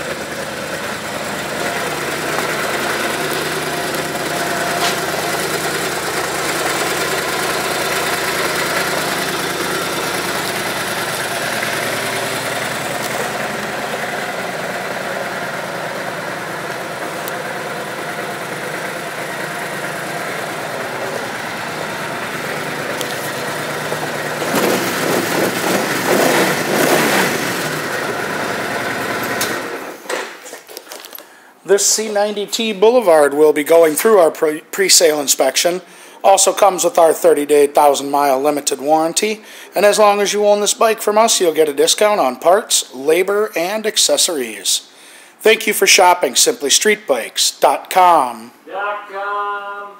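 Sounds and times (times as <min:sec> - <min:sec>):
motorcycle engine idling and revving: 0:00.0 - 0:30.0.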